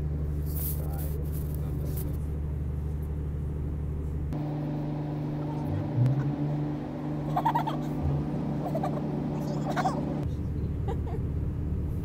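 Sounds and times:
train hum inside carriage: 0:00.0 - 0:04.5.

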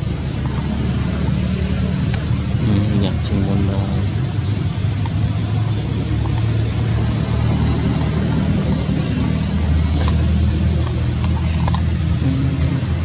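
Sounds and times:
engine running low rumble: 0:00.0 - 0:13.0.

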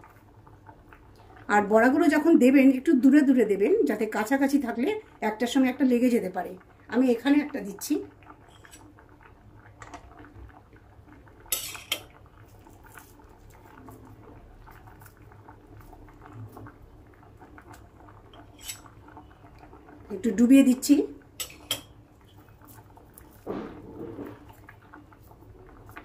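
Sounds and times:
utensil scraping a cooking pan: 0:08.4 - 0:08.9, 0:11.5 - 0:12.1, 0:18.3 - 0:18.9.

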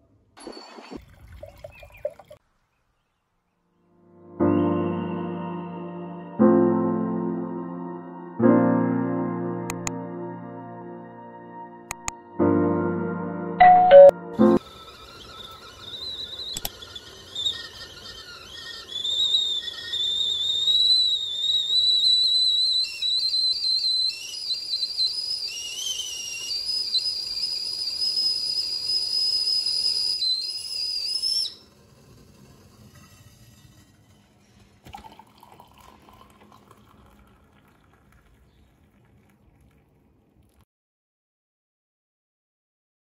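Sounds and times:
high wavering whistle: 0:14.0 - 0:33.8.

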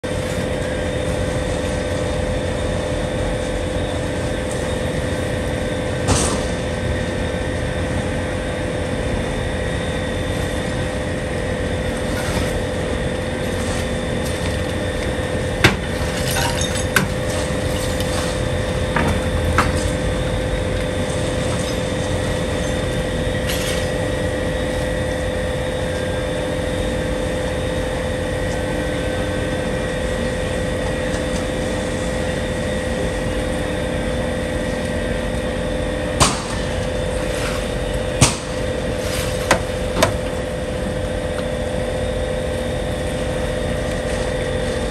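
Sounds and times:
engine-like drone: 0:00.0 - 0:44.9
falling debris: 0:15.7 - 0:18.6
breaking glass clinks: 0:16.2 - 0:17.0.

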